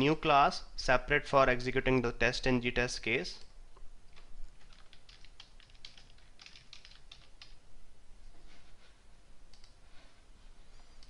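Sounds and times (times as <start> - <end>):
keyboard typing: 4.1 - 7.6, 9.5 - 9.8.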